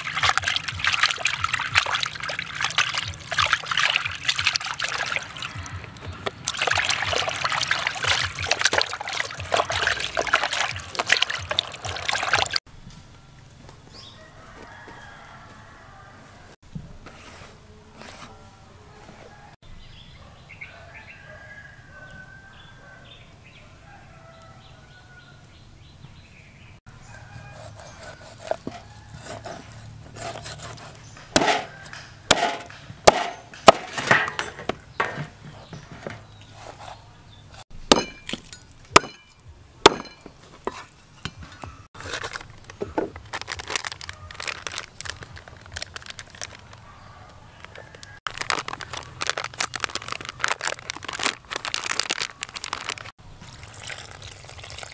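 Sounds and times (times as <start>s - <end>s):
cleaver chopping ribs on wooden board: 27.3s - 35.2s, 39.8s - 40.2s.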